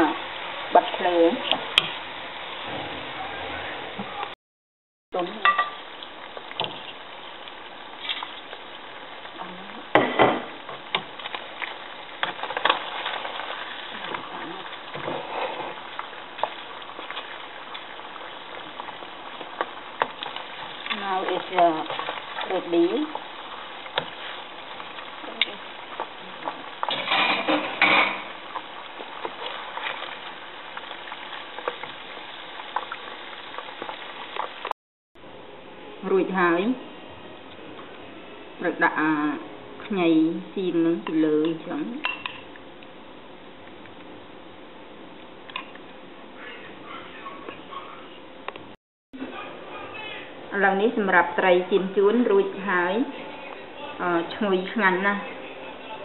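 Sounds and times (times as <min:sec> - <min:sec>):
fish sizzling in frying pan: 0:00.0 - 0:02.7, 0:05.2 - 0:34.8.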